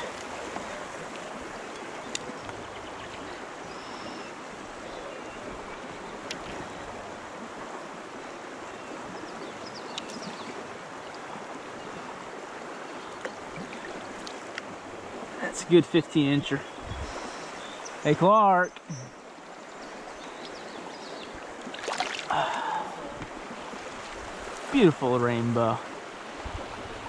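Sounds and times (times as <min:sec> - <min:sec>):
stream flowing: 0:00.0 - 0:27.0
faint clicks: 0:00.2 - 0:03.2.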